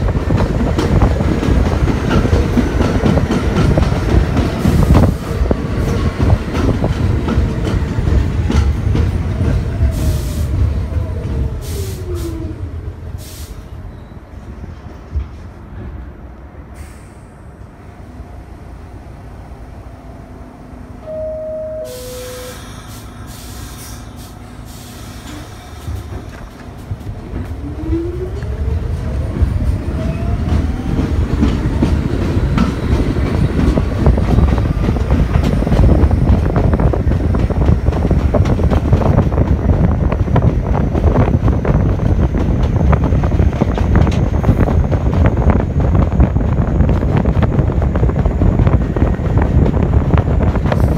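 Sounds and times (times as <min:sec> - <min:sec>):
train wheels clattering on rails: 0:00.0 - 0:12.3, 0:22.9 - 0:50.9
hiss of air: 0:09.9 - 0:10.6, 0:11.6 - 0:12.4, 0:13.1 - 0:13.8, 0:16.7 - 0:17.6, 0:21.9 - 0:26.0.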